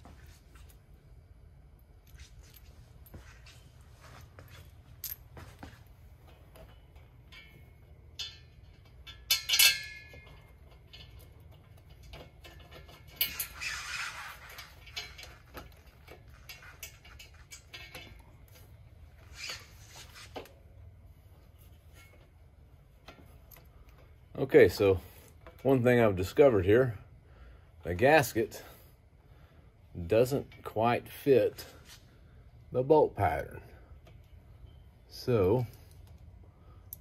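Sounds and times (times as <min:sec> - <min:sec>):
metal bolts clinking: 0:04.4 - 0:20.5.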